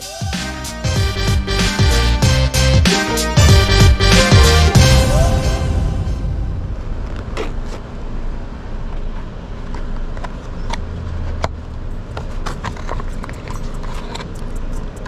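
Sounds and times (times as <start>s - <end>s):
vehicle engine rumble: 4.8s - 15.0s.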